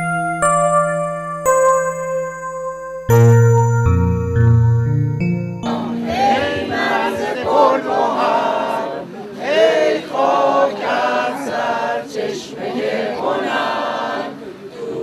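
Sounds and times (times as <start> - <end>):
keyboard music: 0.0 - 7.7
group singing unaccompanied: 5.6 - 15.0.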